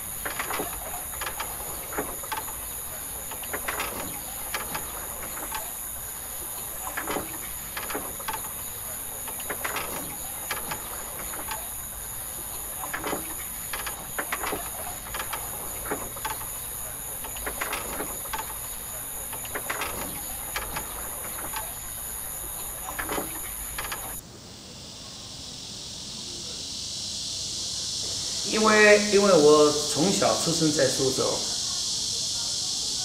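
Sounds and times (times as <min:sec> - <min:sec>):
high-pitched insect drone: 0:24.8 - 0:33.0.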